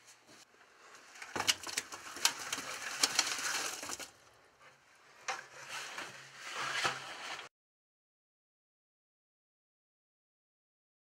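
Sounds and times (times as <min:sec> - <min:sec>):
fish scraping in a bucket: 0:00.8 - 0:04.2.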